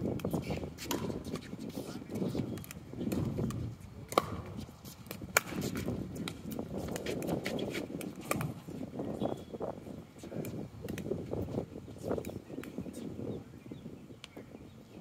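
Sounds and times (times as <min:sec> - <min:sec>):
wind rumble on microphone: 0:00.0 - 0:15.0
paddles hitting plastic ball: 0:00.1 - 0:01.5, 0:02.1 - 0:08.6, 0:10.4 - 0:11.1.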